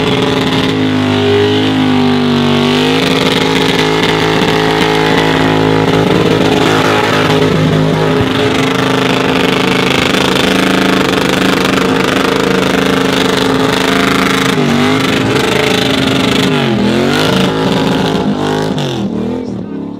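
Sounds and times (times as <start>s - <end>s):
car engine revving high: 0.0s - 19.9s.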